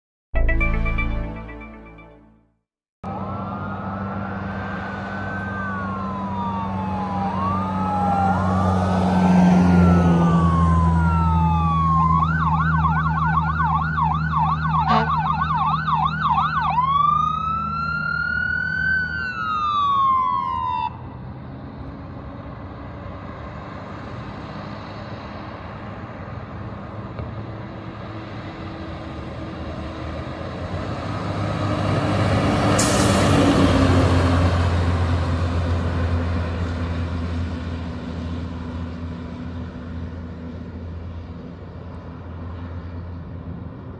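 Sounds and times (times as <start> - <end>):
truck engine and road noise: 0.4 - 43.9
fire engine siren wailing: 3.0 - 43.9
deep air horn tone: 14.8 - 15.2.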